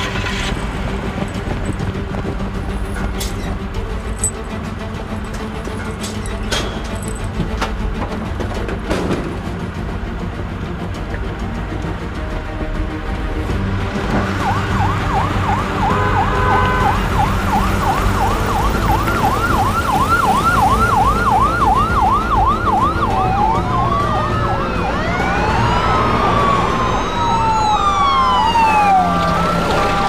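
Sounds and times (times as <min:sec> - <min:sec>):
police sirens yelping and wailing: 0:09.7 - 0:30.0.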